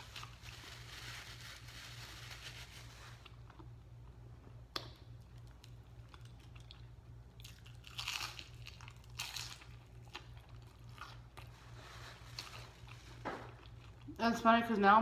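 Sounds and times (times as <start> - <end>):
crunching onion ring: 5.1 - 14.1.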